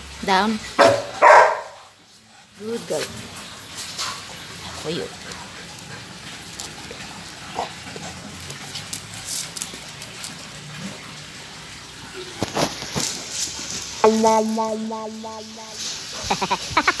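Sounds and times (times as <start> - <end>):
dog chewing a raw carrot: 3.0 - 11.3
carrot crunching: 5.3 - 10.5, 12.4 - 14.0.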